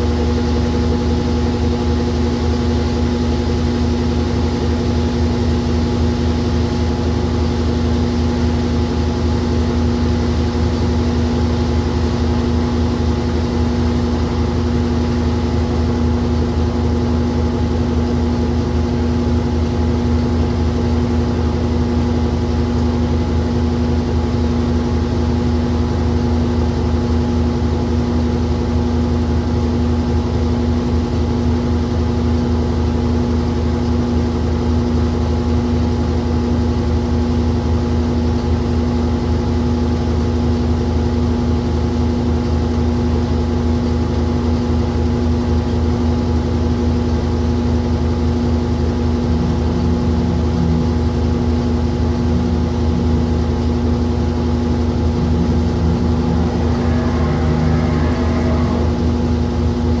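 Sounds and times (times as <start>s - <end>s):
washing machine motor humming: 41.9s - 60.0s.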